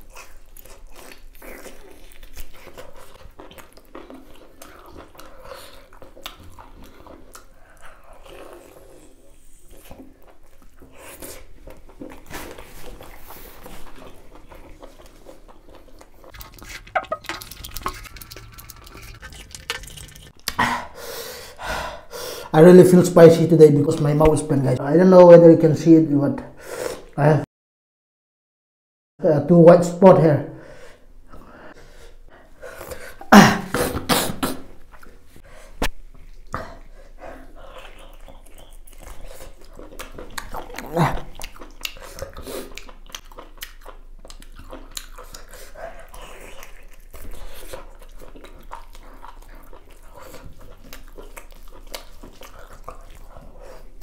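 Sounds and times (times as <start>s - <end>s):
man coughing: 33.3s - 34.7s.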